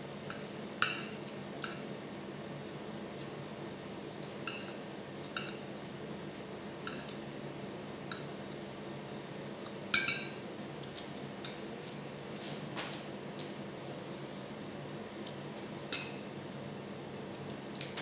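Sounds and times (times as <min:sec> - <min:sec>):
cutlery clinking on a plate: 0:09.9 - 0:10.4.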